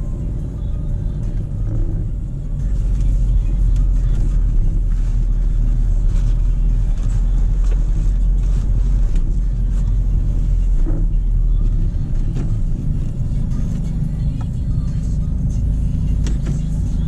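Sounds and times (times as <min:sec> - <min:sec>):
car engine and tyres rumbling: 0:00.0 - 0:17.0.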